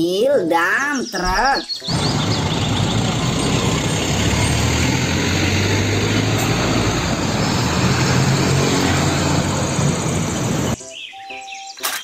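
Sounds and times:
truck engine drone: 1.8 - 10.8
tyre and road noise: 1.8 - 10.8.

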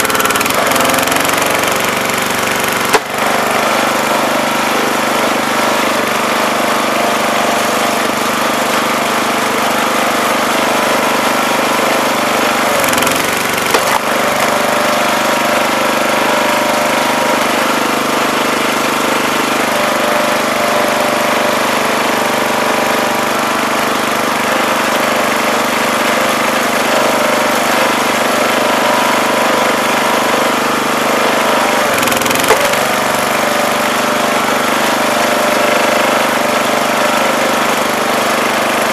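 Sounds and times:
wood splitting crack: 0.0 - 4.3, 12.3 - 15.0, 31.8 - 33.9
small gasoline engine running: 0.0 - 38.9.

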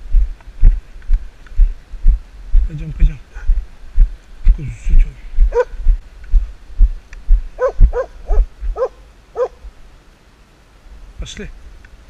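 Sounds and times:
dog barking: 5.5 - 5.8, 7.6 - 9.6.

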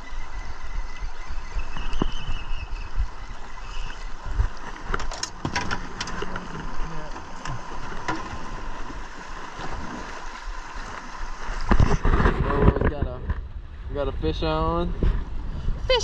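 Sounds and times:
wind buffeting microphone: 0.0 - 16.0
water slapping against boat: 1.6 - 13.5.

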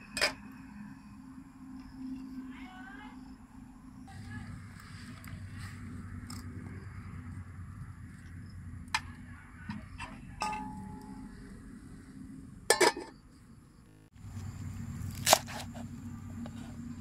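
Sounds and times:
low rumble: 3.2 - 15.2.

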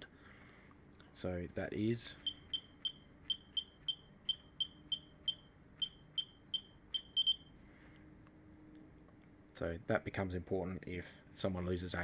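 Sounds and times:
short high keypad beeps: 2.2 - 7.5.

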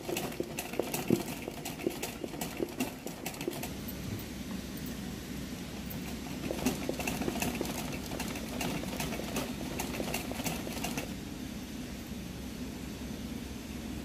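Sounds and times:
sewing machine motor hum: 0.0 - 4.5, 5.8 - 11.2.

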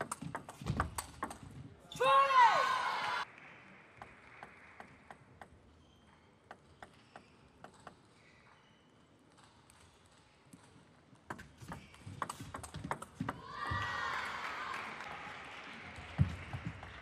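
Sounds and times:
table tennis ball bouncing: 0.0 - 1.6, 9.3 - 13.8.

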